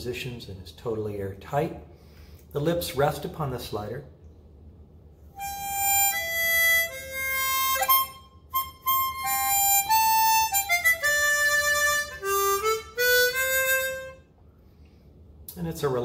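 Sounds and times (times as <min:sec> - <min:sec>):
harmonica melody: 0:05.4 - 0:14.3.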